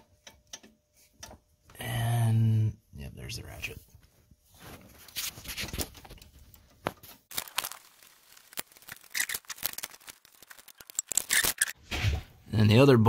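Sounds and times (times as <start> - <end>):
hands rustling: 7.0 - 11.7.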